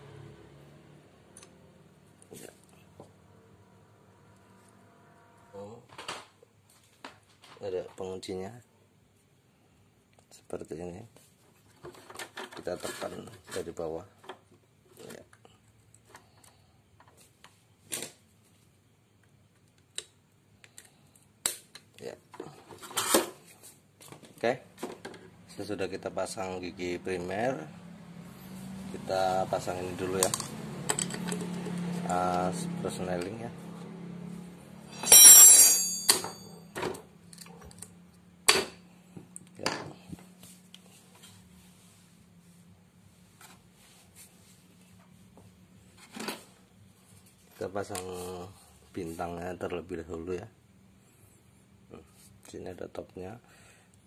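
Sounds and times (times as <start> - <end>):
ringing metallic clang: 34.9 - 36.7.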